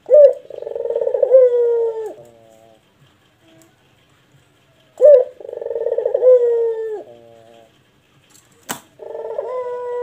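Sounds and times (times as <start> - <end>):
dove cooing: 0.0 - 3.8, 4.9 - 7.9, 8.9 - 10.0
sharp click: 8.3 - 9.0.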